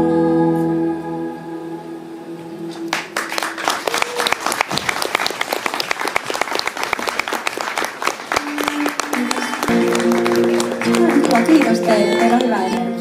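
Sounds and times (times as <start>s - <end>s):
audience applause: 2.7s - 13.0s
band holding last notes: 8.3s - 13.0s.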